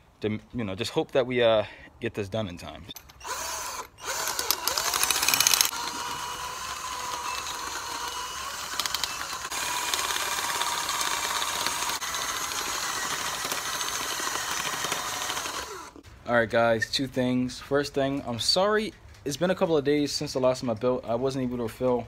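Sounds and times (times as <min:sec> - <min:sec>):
cordless drill motor whine: 0:03.2 - 0:16.0.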